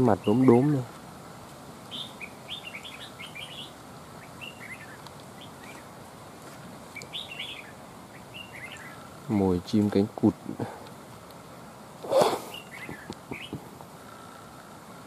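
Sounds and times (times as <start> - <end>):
bird chirping: 0.0 - 0.8, 1.9 - 5.9, 6.9 - 9.2, 12.1 - 14.3.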